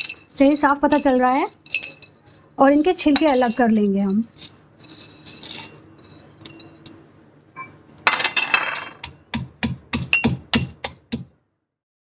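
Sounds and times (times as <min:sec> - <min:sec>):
pods clattering into metal mortar: 0:00.0 - 0:06.9
metal pestle pounding pods: 0:09.0 - 0:11.3.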